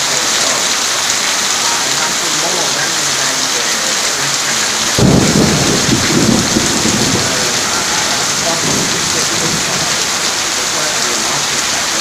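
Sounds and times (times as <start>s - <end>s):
steady rain hissing: 0.0s - 12.0s
low rumble: 5.0s - 10.1s.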